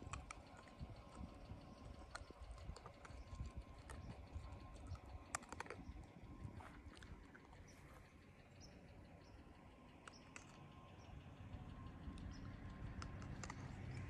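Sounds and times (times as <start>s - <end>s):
low uneven rumble: 0.0s - 14.0s
soft clicks: 10.0s - 10.9s, 12.1s - 14.0s.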